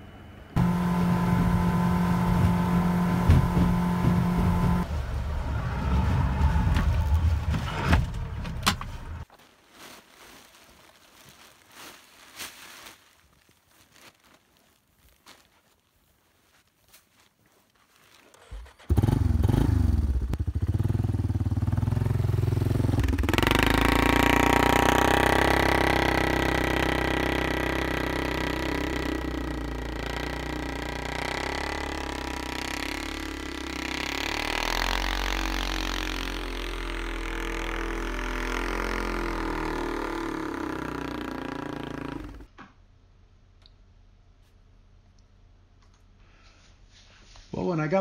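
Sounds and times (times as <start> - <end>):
atv engine starting and revving: 0.6 - 4.9, 18.3 - 42.5.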